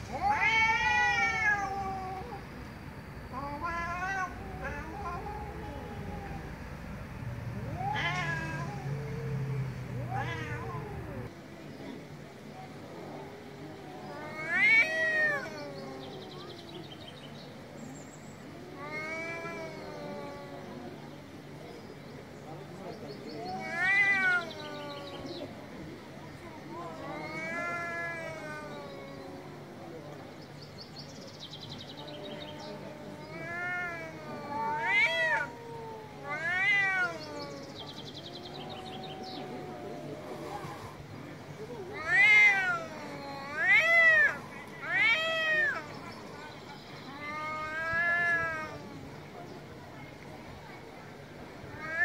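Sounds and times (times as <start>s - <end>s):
cats yowling: 0.0s - 2.5s, 3.3s - 11.3s, 13.2s - 16.8s, 18.5s - 21.0s, 23.4s - 25.5s, 26.6s - 30.0s, 31.9s - 49.1s, 51.6s - 52.0s.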